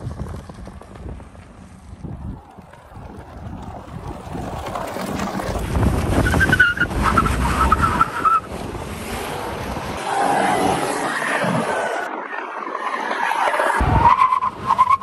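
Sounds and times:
wind buffeting microphone: 0.0s - 10.9s
car engine rumble: 0.0s - 12.2s
tires squealing: 2.0s - 15.0s.

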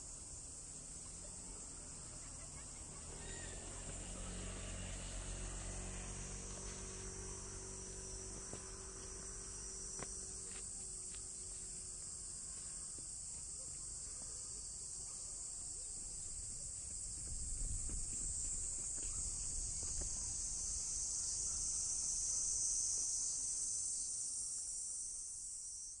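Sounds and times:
low outdoor rumble: 0.0s - 12.7s.

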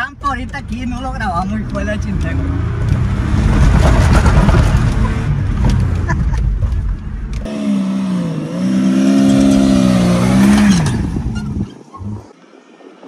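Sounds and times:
car engine pulling hard: 1.6s - 12.3s
vehicle rumbling on sand: 2.4s - 6.5s.

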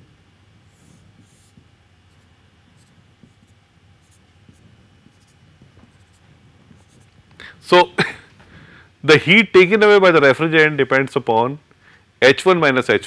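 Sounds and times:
marker pen on whiteboard: 0.6s - 7.4s.

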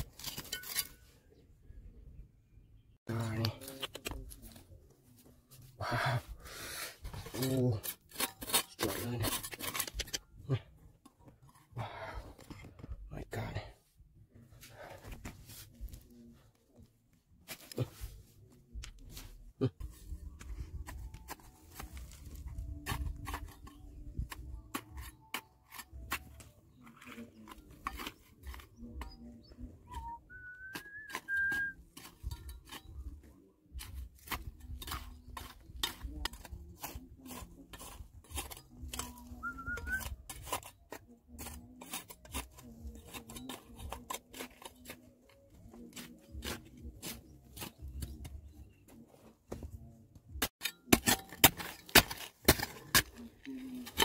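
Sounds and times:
digging tool on stone: 0.0s - 1.4s, 3.1s - 5.7s, 6.6s - 13.0s, 17.4s - 54.0s.

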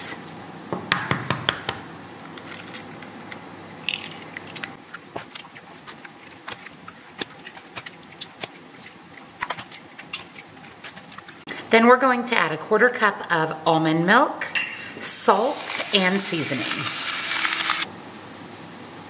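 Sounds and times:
eggs cracking on metal bowl: 1.5s - 11.5s.

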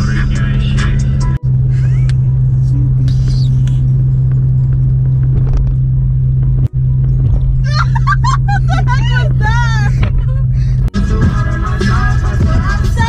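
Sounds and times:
car cabin drone: 0.0s - 13.0s
person singing: 11.0s - 13.0s.

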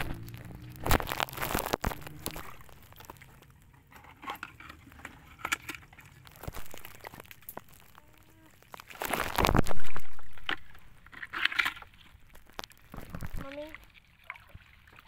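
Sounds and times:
low hum: 0.0s - 8.6s.

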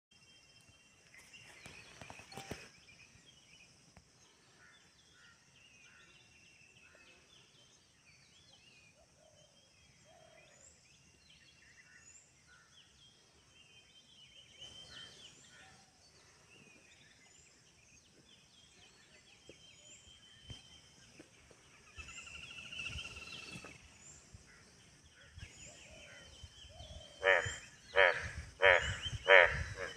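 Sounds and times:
birds chirping and calling: 18.4s - 29.9s.

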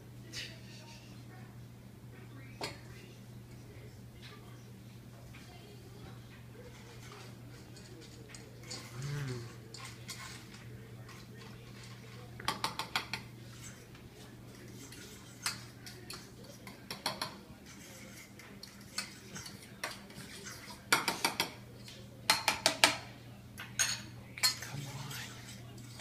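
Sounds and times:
metal spoon clinking on steel bowls: 6.7s - 13.9s, 14.5s - 23.0s, 23.6s - 26.0s.

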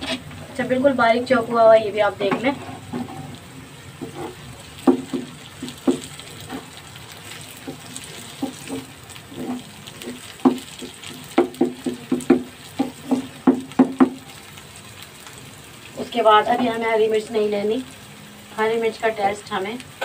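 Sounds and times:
spatula scraping frying pan: 0.0s - 0.8s, 2.3s - 13.4s
frying sizzle: 0.0s - 20.0s.

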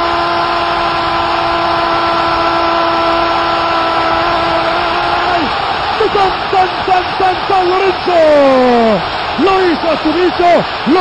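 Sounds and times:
commentator goal cry: 0.0s - 11.0s
stadium crowd cheering: 0.0s - 11.0s.

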